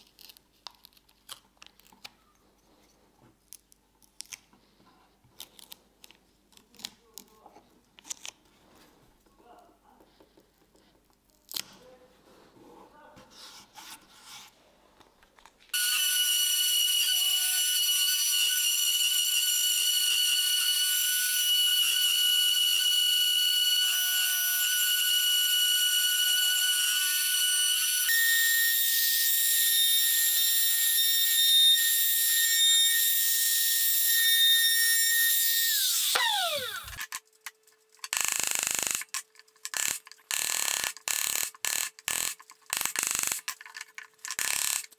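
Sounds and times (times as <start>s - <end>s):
tape being peeled off: 0.0s - 2.2s, 5.3s - 8.5s
router whining: 15.8s - 37.1s.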